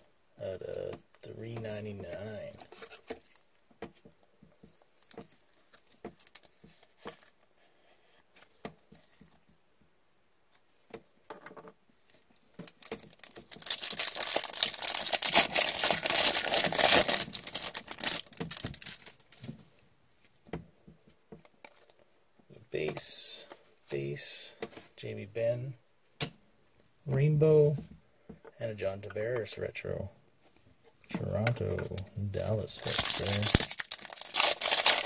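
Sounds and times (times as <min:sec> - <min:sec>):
foil wrapper tearing and crinkling: 0:12.7 - 0:19.2, 0:32.4 - 0:35.0.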